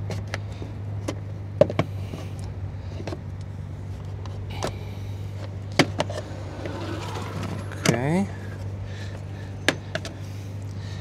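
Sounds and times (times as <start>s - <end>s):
steady low hum: 1.9s - 11.0s.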